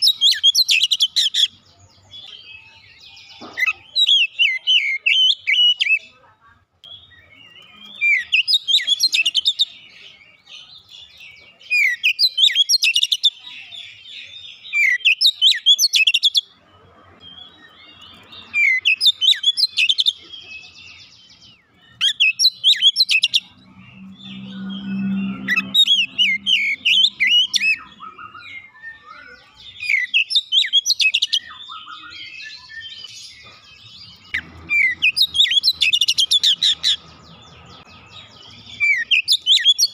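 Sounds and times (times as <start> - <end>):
bird whistling and chirping: 0.0 - 1.5, 17.2 - 21.1, 22.0 - 37.0, 38.7 - 39.9.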